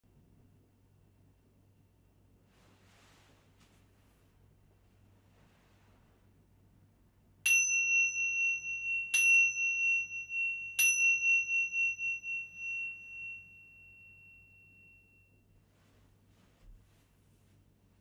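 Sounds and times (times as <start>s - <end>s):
small cymbals struck ringing: 7.5s - 15.3s.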